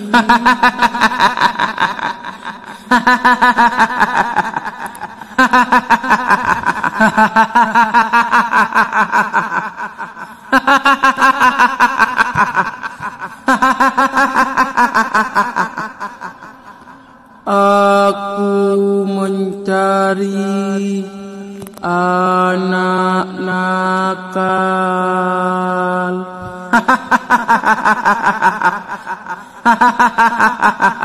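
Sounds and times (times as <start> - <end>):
high-pitched cackling laugh: 0.0 - 17.1, 26.7 - 31.0.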